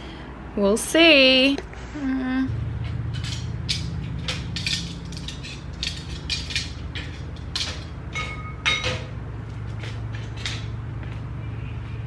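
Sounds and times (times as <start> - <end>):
steady low hum: 0.0 - 12.0
dishes clinking and clattering: 3.0 - 9.2
dish ringing: 3.1 - 9.2.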